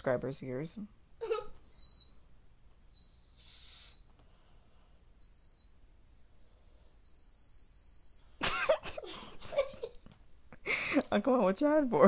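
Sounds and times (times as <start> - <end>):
shrill toy whistle blasts: 3.0 - 4.2, 5.2 - 5.8, 7.0 - 8.4.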